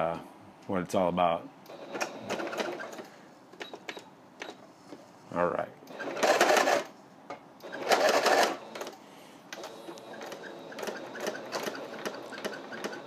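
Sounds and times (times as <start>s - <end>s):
electric sewing machine stitching: 1.7s - 3.1s, 5.9s - 6.9s, 7.6s - 9.0s, 9.6s - 13.0s.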